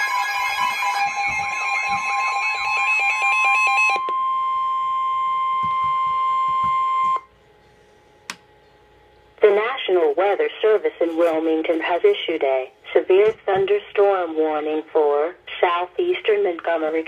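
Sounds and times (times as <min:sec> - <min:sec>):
steady alarm beep: 0:00.0 - 0:07.3
warbling pulsing alarm: 0:00.0 - 0:07.3.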